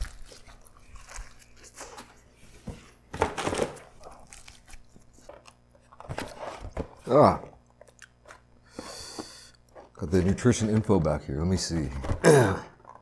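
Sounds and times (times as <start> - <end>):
person biting and chewing pizza: 0.0 - 3.0, 3.8 - 6.1, 7.0 - 10.0.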